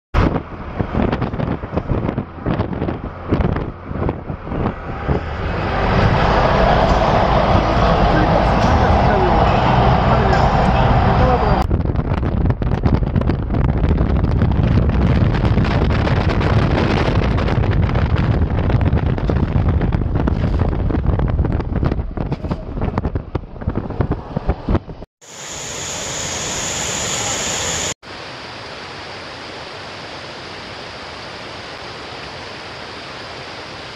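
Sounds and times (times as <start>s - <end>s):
car road and engine rumble: 0.2s - 25.0s
wind buffeting microphone: 0.2s - 25.1s.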